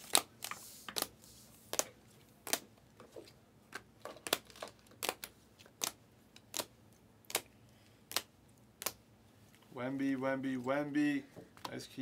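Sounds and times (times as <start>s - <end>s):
cards snapping: 4.2s - 6.7s, 7.3s - 7.5s, 8.1s - 9.0s.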